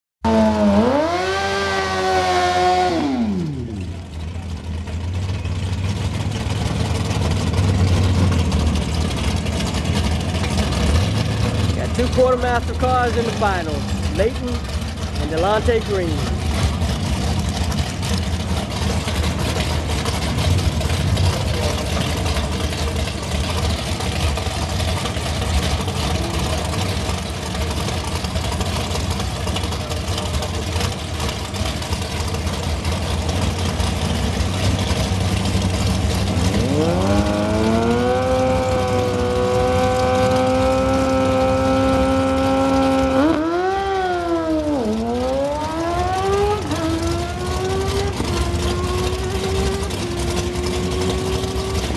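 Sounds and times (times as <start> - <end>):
engine revving up and down: 0.2 - 4.2, 32.8 - 51.9
drag racing engines running: 0.2 - 51.9.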